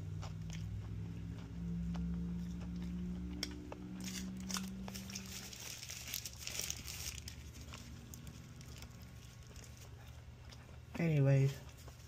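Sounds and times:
low steady hum: 0.0 - 12.0
paper wrapper crinkling: 4.0 - 9.8.

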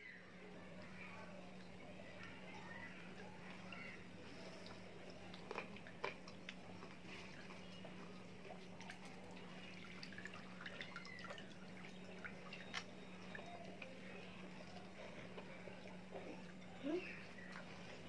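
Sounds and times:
steady low hum: 0.0 - 18.0
wet crunches of food eaten: 4.7 - 7.7.

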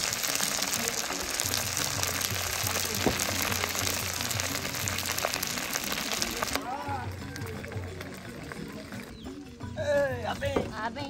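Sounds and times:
oil sizzling in a pot: 0.0 - 9.0
background music: 0.0 - 11.0.

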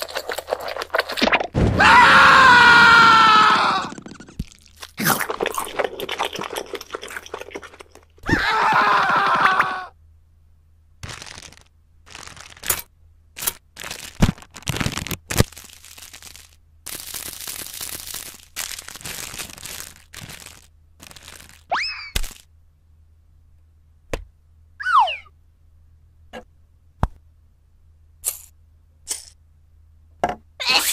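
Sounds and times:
plastic packet crinkling: 0.0 - 1.4, 11.0 - 22.4
snacks crunching and crackling: 0.0 - 1.6, 3.4 - 8.2, 11.0 - 22.5.

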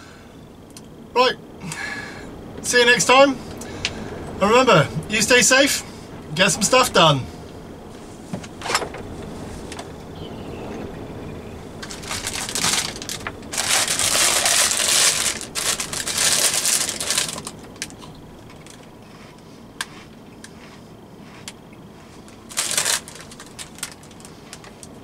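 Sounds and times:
plastic packet crinkling: 11.8 - 18.9, 22.3 - 25.0.

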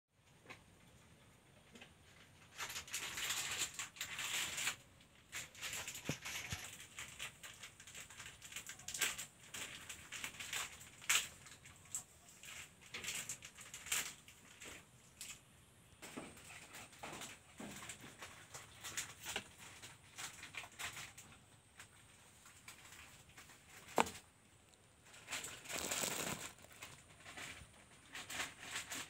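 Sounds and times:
rustling and crinkling handling: 0.2 - 29.0.

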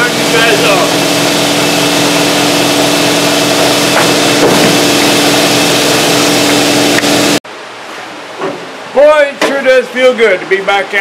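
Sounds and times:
machine humming and hissing: 0.0 - 7.4.

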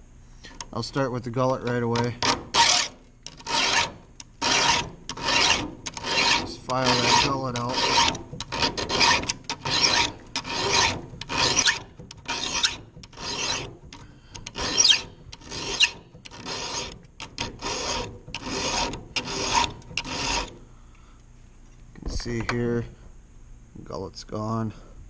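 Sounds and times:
file rasping on saw chain: 2.2 - 13.8, 14.4 - 20.6.

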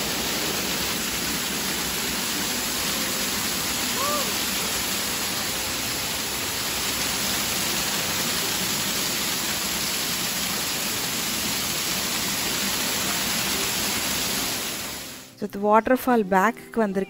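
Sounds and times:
waterfall rushing onto rocks: 0.0 - 15.3.

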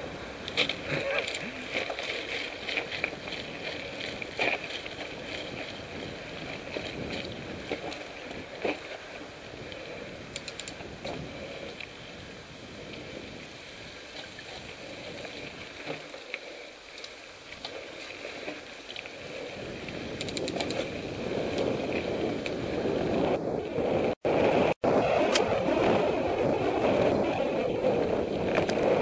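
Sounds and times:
wind noise on microphone: 0.0 - 16.2, 16.9 - 29.0
bike tyres rolling and rattling: 0.0 - 29.0
rapid ticking: 10.3 - 10.8.

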